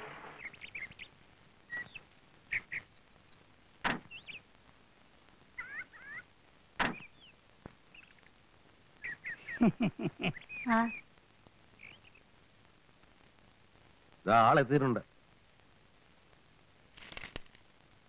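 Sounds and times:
birds chirping: 0:00.0 - 0:04.6, 0:05.5 - 0:12.3.

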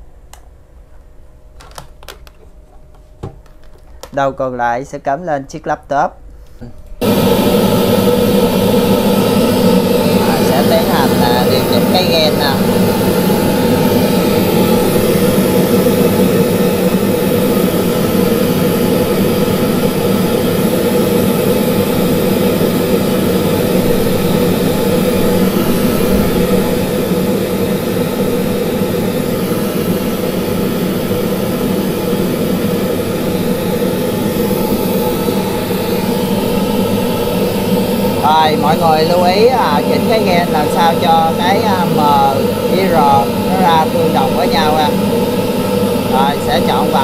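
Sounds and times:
pink noise through loudspeakers: 0:10.0 - 0:12.6, 0:38.2 - 0:45.0, 0:46.1 - 0:47.0.

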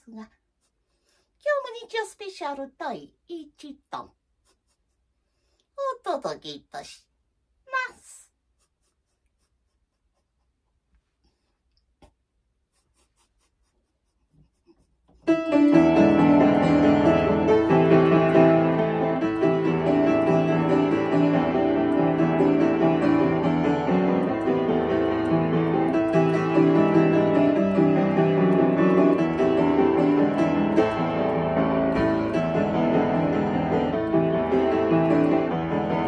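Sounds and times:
piano piece: 0:15.3 - 0:36.0.

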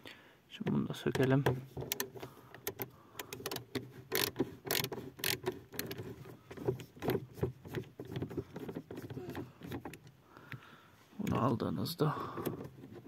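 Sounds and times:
screwdriver clicking: 0:01.9 - 0:06.0.

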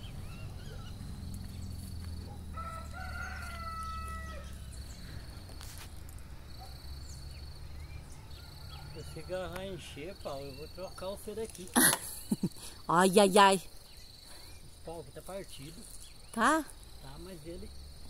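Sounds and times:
faint insect chirring: 0:00.0 - 0:18.0
rooster crowing: 0:02.3 - 0:04.7, 0:08.1 - 0:10.2.

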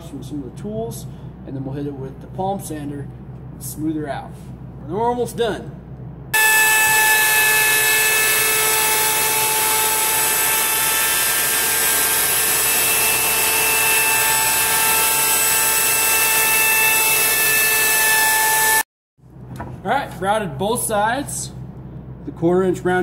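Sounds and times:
wood router whining: 0:06.4 - 0:18.9.

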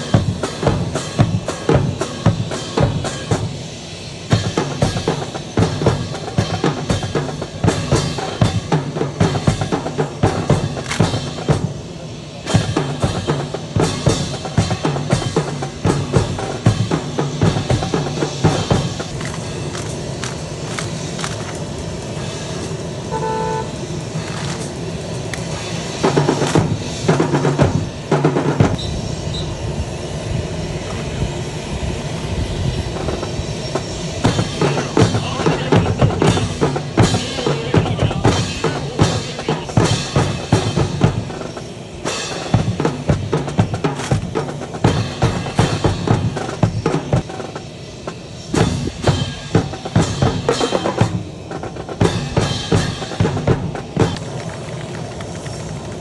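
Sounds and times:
marching snare and bass drums: 0:00.0 - 0:21.6, 0:23.1 - 0:24.6, 0:25.4 - 0:29.3, 0:32.8 - 0:55.9
rifles slapped and struck: 0:10.8 - 0:11.1.

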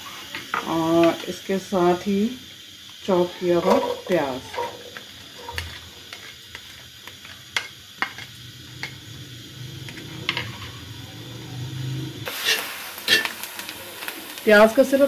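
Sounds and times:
onions sizzling in oil: 0:00.0 - 0:15.0
metal spoon scraping pan: 0:03.6 - 0:09.0, 0:12.3 - 0:13.4.

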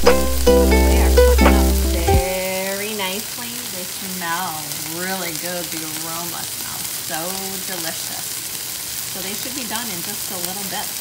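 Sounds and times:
bass-heavy background music: 0:00.0 - 0:02.3
soft tune: 0:00.0 - 0:02.4
patties sizzling in oil: 0:00.0 - 0:11.0.

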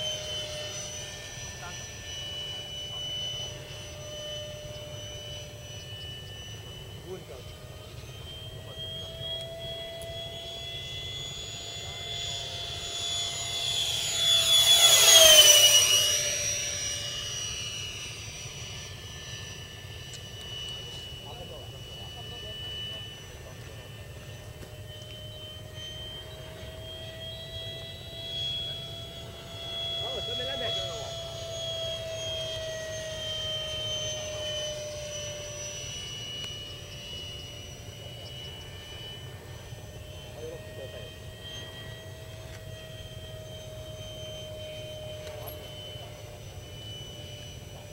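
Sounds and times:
model jet fan whining flyby: 0:00.0 - 0:47.9.

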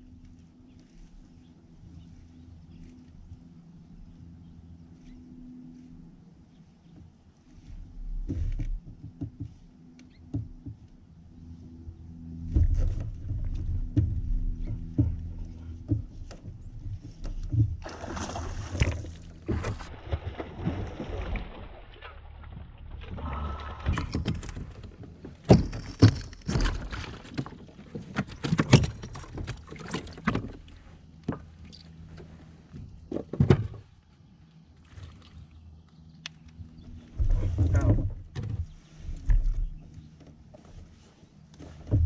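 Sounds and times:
knocks and thumps on hull: 0:08.1 - 0:09.6, 0:10.3 - 0:10.9, 0:12.4 - 0:21.6, 0:23.8 - 0:31.6, 0:37.0 - 0:40.2
fish splashing in water: 0:17.8 - 0:22.3.

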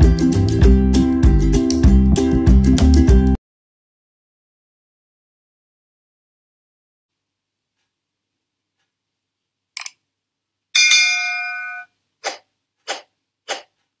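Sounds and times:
bell chime: 0:10.8 - 0:11.9.

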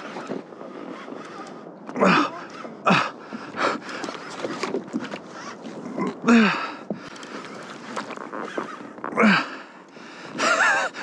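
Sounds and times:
man grunting and panting: 0:06.1 - 0:06.8.

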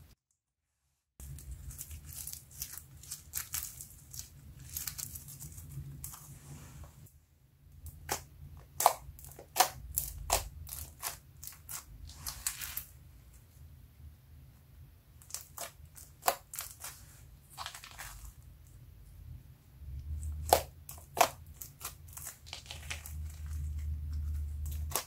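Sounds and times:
foam beads crackling: 0:01.2 - 0:06.2
hands squishing slime: 0:07.9 - 0:13.0, 0:15.2 - 0:18.6, 0:20.0 - 0:25.0.

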